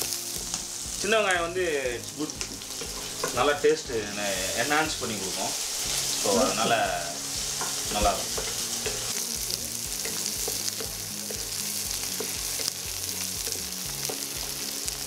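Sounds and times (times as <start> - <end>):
onions sizzling in hot oil: 0.0 - 15.0
spatula scraping and tapping pan: 2.4 - 3.4, 7.5 - 9.2, 10.0 - 12.8.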